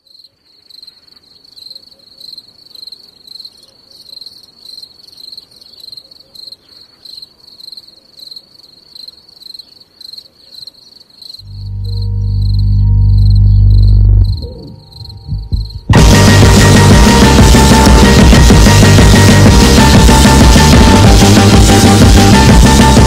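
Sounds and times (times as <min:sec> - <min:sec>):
crickets chirping: 0:00.0 - 0:15.9
loud music: 0:11.5 - 0:23.0.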